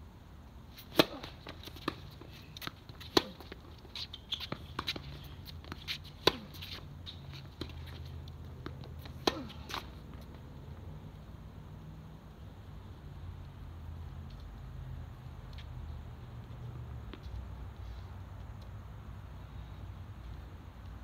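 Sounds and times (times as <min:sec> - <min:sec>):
racket hitting tennis ball: 0:00.7 - 0:10.4
shoes tapping on court: 0:00.8 - 0:10.5
tennis ball bouncing: 0:00.8 - 0:10.6.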